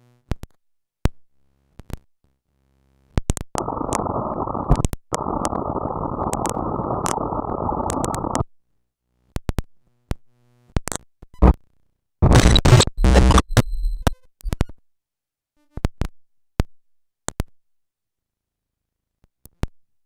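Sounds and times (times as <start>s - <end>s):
digital clicks and pops: 3.6s - 8.4s
harsh burst of noise: 3.6s - 8.4s
steady electronic noise wash: 3.6s - 8.4s.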